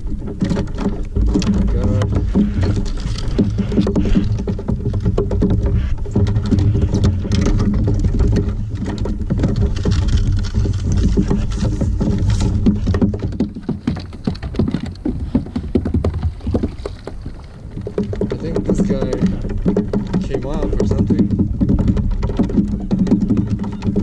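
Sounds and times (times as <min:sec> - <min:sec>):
water lapping against plastic hull: 0:00.0 - 0:24.0.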